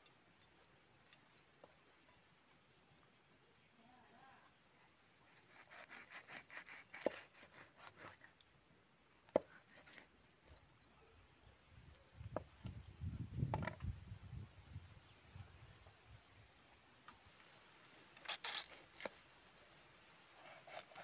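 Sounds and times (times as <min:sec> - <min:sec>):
knife scraping fish: 0:05.4 - 0:08.3, 0:20.4 - 0:21.0.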